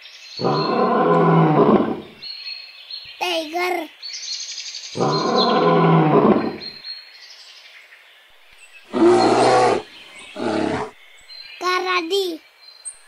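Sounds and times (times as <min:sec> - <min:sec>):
tiger roaring: 0:00.4 - 0:02.2, 0:05.0 - 0:06.8, 0:08.9 - 0:11.0.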